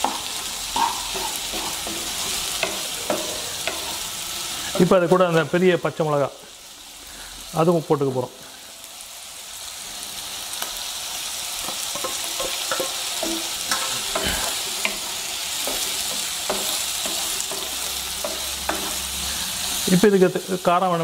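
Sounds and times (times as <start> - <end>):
spatula scraping and knocking pan: 0.0 - 5.0, 11.6 - 19.8
vegetables sizzling in hot oil: 0.0 - 21.0.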